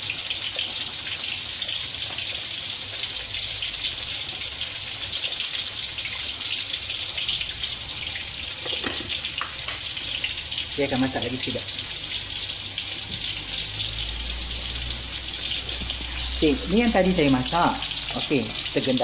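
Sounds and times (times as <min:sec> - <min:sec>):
gravy bubbling and sizzling: 0:00.0 - 0:19.0
spatula stirring in pan: 0:14.4 - 0:16.4.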